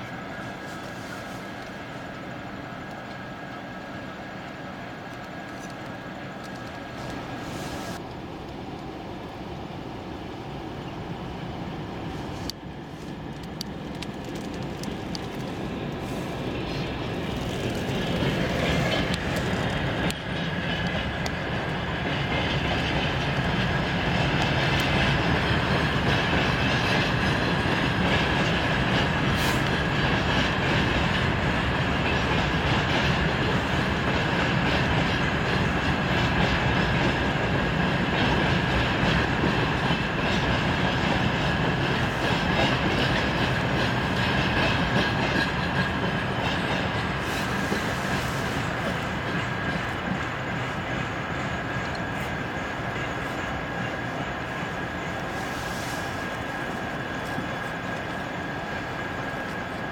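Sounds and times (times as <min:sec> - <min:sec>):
train wheels clattering: 0:12.5 - 0:59.9.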